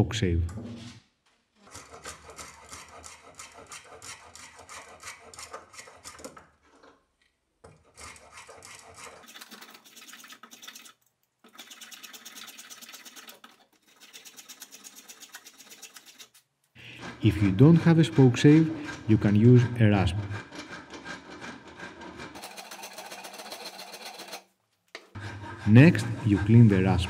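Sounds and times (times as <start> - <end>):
spoke shave scraping wood: 1.6 - 6.9, 11.5 - 24.4, 25.0 - 27.0.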